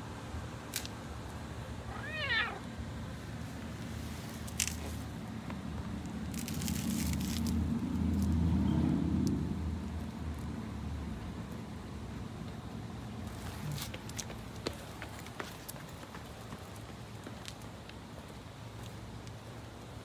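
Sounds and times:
cat meowing: 1.9s - 2.7s
soft rustles: 3.4s - 5.1s.

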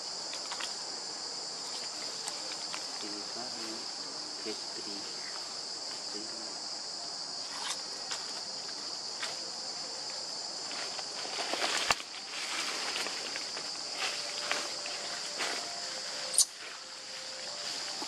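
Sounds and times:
insect chorus: 0.0s - 18.0s
dry leaves rustling: 10.2s - 18.0s.

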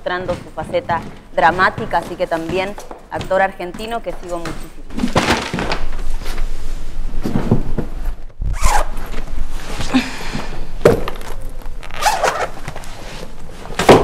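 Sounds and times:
boot zipper zipping: 8.4s - 9.2s, 11.8s - 13.0s.

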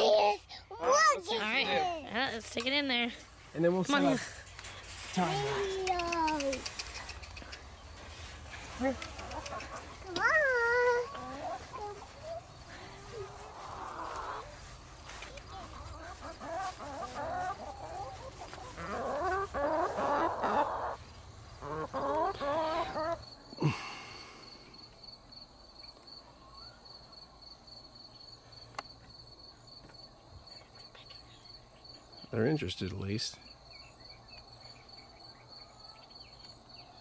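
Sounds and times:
chickens clucking: 0.8s - 23.6s
crickets chirping: 1.5s - 37.0s.

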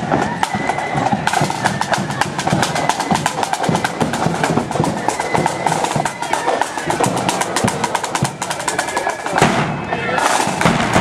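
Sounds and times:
side drums and bass drum: 0.0s - 11.0s.

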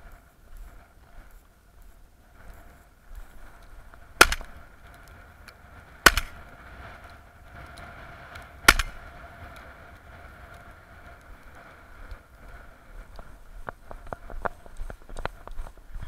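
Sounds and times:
shotgun shots: 4.2s - 4.6s, 6.0s - 6.4s, 8.6s - 9.0s.

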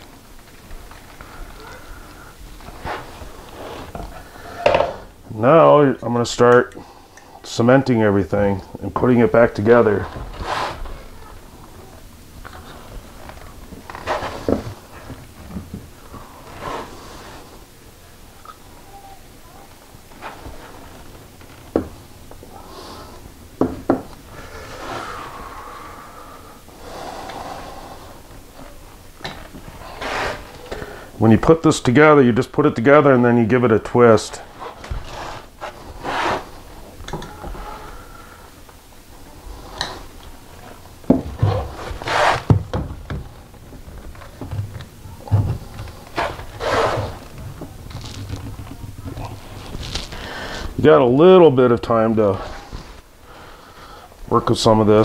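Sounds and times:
cement brushing and rustling: 9.0s - 17.5s, 40.6s - 50.8s
plastic pipe scraping: 41.3s - 42.9s, 44.1s - 50.7s.

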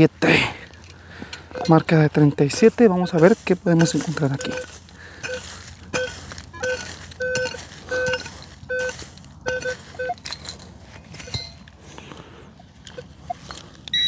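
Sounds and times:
sharp clinks and scrapes: 0.6s - 14.0s
metal detector low beeps: 1.5s - 1.9s, 3.0s - 10.4s, 12.8s - 14.0s.

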